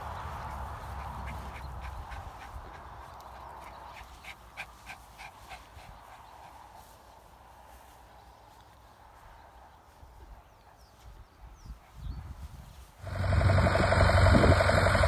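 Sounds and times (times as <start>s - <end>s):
low rumble: 13.0s - 15.0s.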